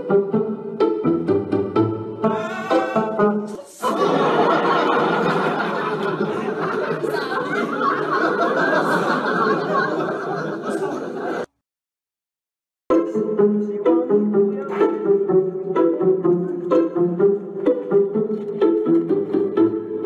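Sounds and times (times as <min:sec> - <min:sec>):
plucked string music: 0:00.0 - 0:03.6, 0:12.9 - 0:20.0
loud laughter: 0:03.8 - 0:11.5.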